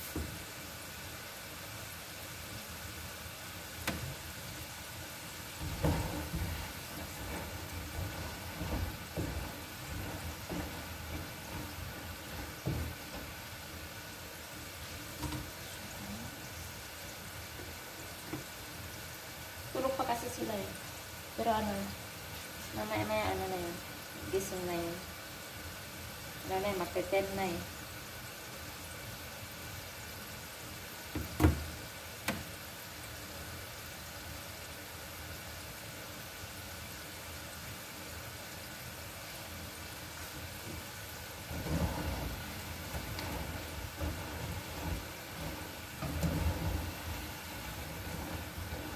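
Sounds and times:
fries deep-frying in oil: 0:00.0 - 0:48.9
steady low hiss: 0:00.0 - 0:48.9
knocks in a kitchen: 0:05.6 - 0:13.4, 0:15.1 - 0:15.6, 0:31.1 - 0:32.6.

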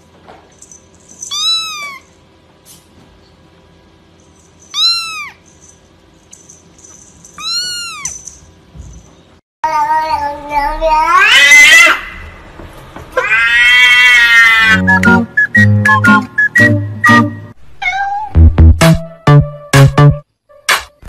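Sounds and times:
kitten meowing: 0:01.3 - 0:02.1, 0:04.7 - 0:05.4, 0:07.4 - 0:08.2
loud cat call: 0:10.9 - 0:12.3, 0:13.2 - 0:14.9.

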